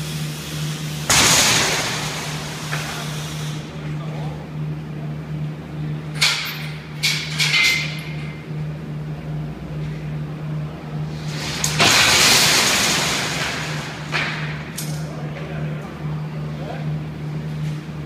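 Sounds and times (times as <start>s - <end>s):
steady low hum: 0.0s - 18.0s
loud metal scrape: 11.1s - 14.1s.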